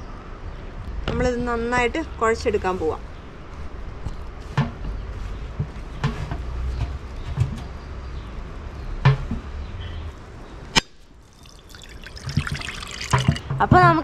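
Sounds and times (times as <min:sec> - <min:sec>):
dough squishing in bowl: 0:11.2 - 0:13.4.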